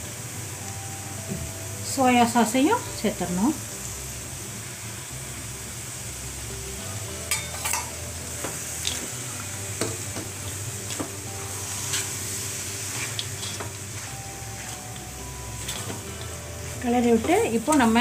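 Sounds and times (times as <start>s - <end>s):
frying sizzle: 0.0s - 18.0s
spatula scraping a wok: 7.3s - 18.0s.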